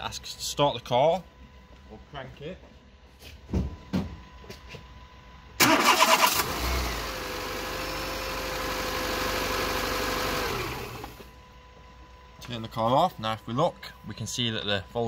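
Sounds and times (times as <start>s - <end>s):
starter motor cranking: 5.6s - 6.9s
car engine idling: 5.6s - 12.0s.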